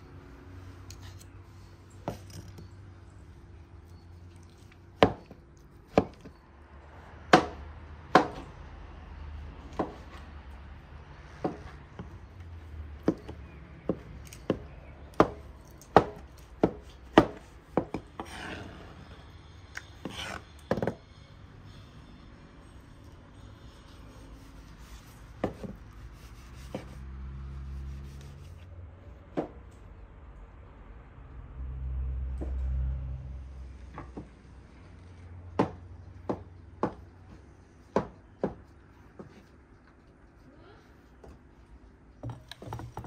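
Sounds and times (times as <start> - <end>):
knife chopping on wooden board: 16.0 - 18.4.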